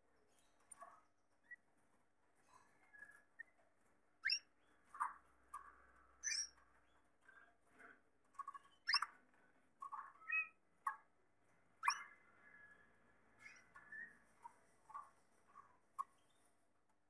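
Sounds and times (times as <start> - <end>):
canaries chirping: 4.2 - 16.5.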